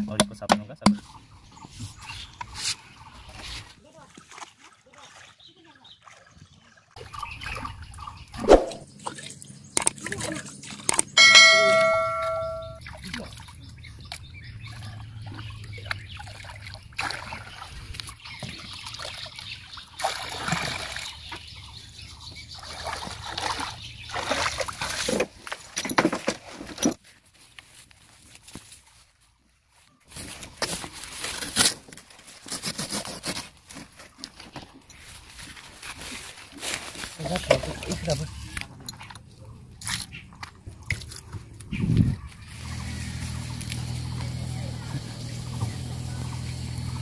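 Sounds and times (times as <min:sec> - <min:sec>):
bamboo tube knock: 0:00.0 - 0:01.0
water sloshing and gurgling: 0:01.1 - 0:11.2, 0:12.8 - 0:27.0
bell-like ding: 0:11.2 - 0:12.8.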